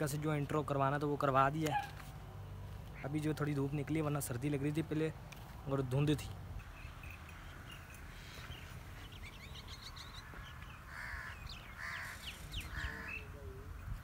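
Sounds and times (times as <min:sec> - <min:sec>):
small birds chirping: 0:06.6 - 0:14.0
crow cawing: 0:10.1 - 0:13.3.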